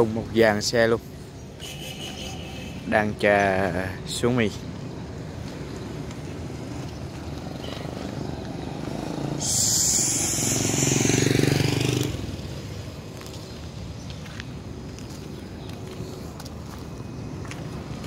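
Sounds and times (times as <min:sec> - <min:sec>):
truck driving past: 0:05.8 - 0:12.7
high hiss: 0:09.4 - 0:11.3.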